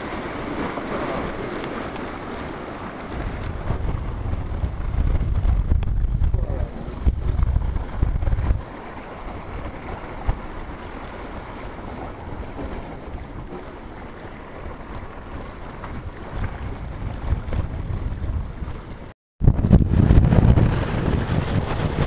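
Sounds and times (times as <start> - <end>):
small waves breaking on rocks: 0.0 - 4.3, 6.5 - 17.8
wind buffeting microphone: 0.0 - 22.0.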